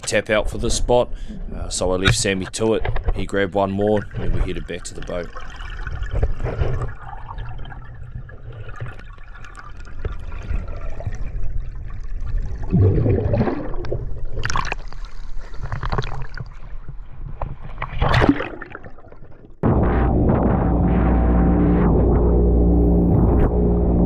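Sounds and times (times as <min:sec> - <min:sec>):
bubbling and churning: 0:00.0 - 0:24.0
underwater water rushing: 0:00.0 - 0:24.0.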